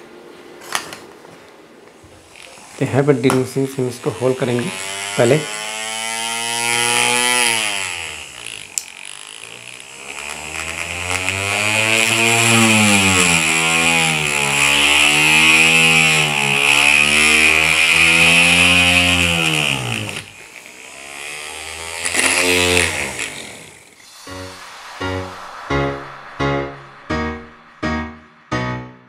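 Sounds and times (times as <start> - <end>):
electric drill boring into bamboo: 2.2 - 24.1.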